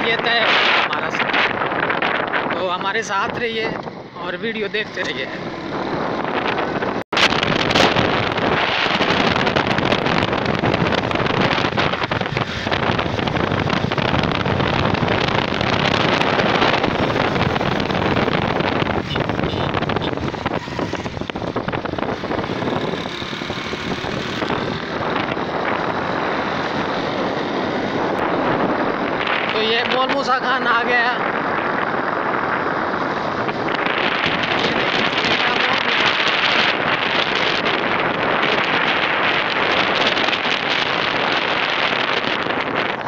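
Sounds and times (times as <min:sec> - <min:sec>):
road noise: 0:00.0 - 0:43.0
wind rushing over microphone: 0:00.0 - 0:43.0
motorcycle engine: 0:03.7 - 0:29.5.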